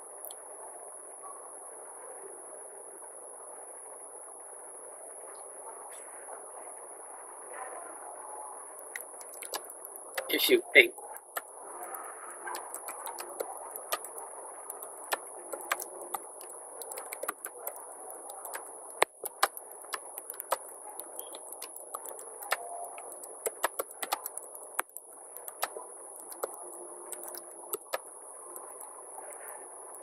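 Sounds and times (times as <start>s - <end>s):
computer keyboard typing: 8.9s - 10.5s, 11.2s - 28.9s.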